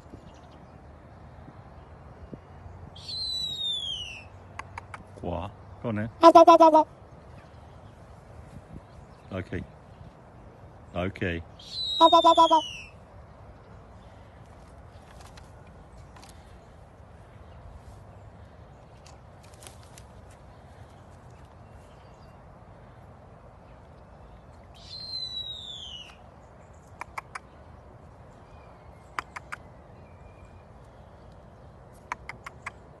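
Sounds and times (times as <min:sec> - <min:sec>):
sharp clicks: 0:04.5 - 0:05.2, 0:26.9 - 0:27.5, 0:32.0 - 0:32.9
raven calling: 0:11.6 - 0:13.0.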